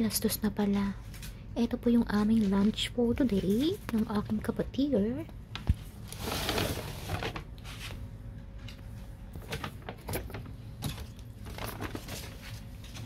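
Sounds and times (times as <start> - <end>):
paper and cardboard rustling: 6.1 - 8.0, 11.4 - 13.0.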